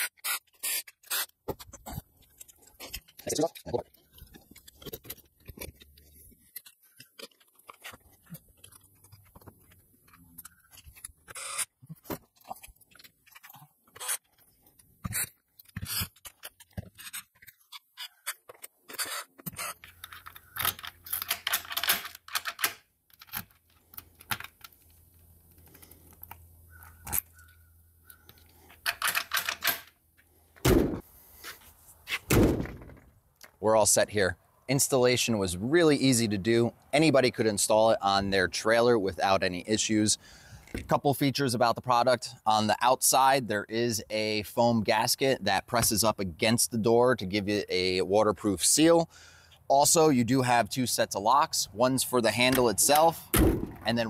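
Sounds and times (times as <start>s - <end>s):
lock parts clicking and scraping: 0.0s - 33.6s, 52.2s - 54.0s.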